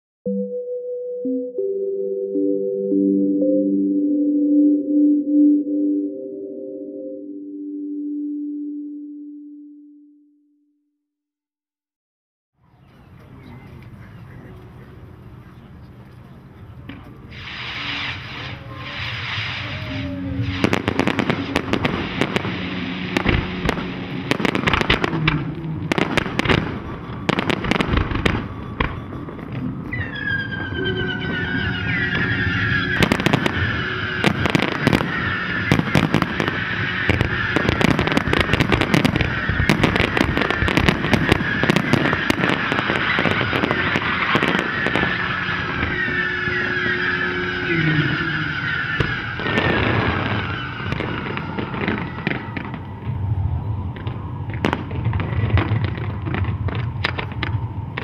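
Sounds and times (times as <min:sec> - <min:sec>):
high whistling fireworks: 0:13.0 - 0:58.0
fireworks bangs and crackles: 0:16.8 - 0:58.0.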